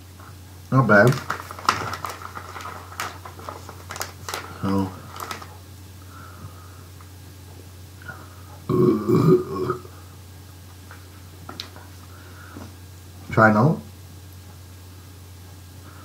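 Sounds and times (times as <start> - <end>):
man burping: 8.7 - 10.0.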